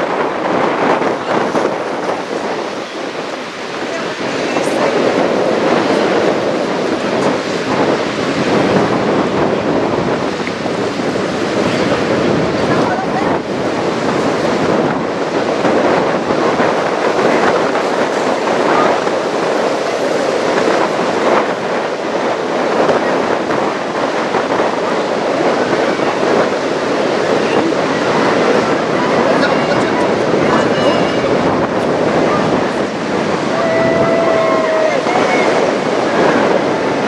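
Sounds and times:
water rushing and splashing: 0:00.0 - 0:37.0
wind on microphone: 0:00.0 - 0:37.0.

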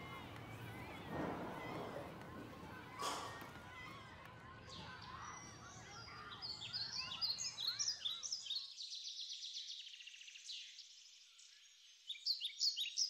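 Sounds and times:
low background murmur: 0:00.0 - 0:08.4
birds chirping and trilling: 0:00.0 - 0:13.0.

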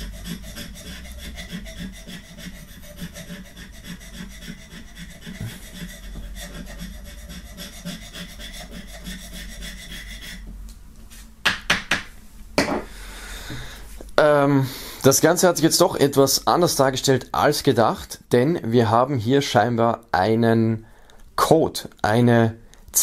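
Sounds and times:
sharp knocks: 0:11.4 - 0:12.9.

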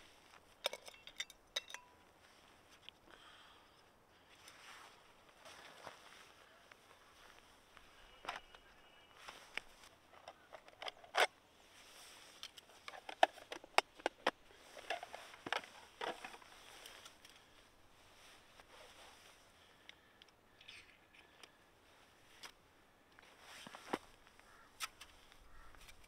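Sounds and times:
camping gear clicks and knocks: 0:00.3 - 0:02.1, 0:05.3 - 0:17.7, 0:22.3 - 0:26.0.

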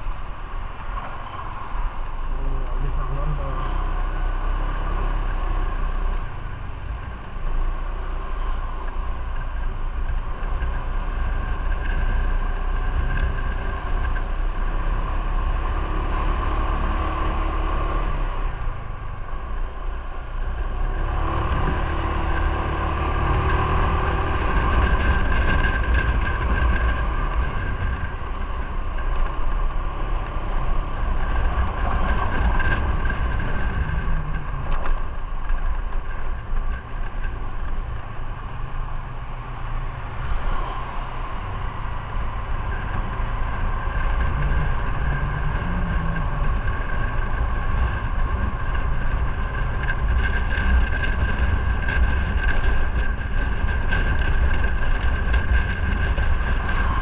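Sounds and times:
wind on microphone: 0:04.5 - 0:57.0
motorcycle engine running: 0:41.3 - 0:57.0.

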